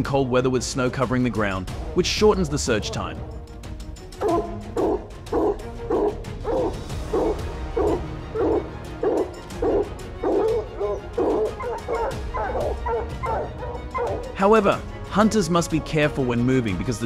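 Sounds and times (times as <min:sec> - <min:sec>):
dog barking: 0:04.2 - 0:14.3.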